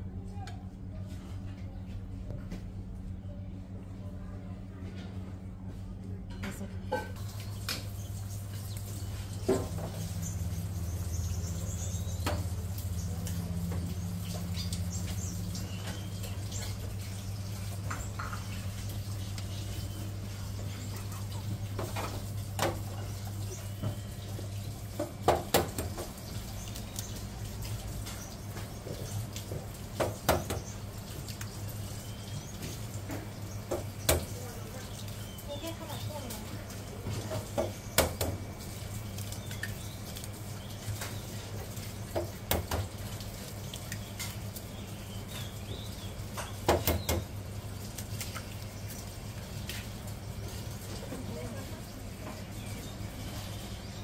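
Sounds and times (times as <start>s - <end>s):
steady low hum: 0.0s - 29.9s.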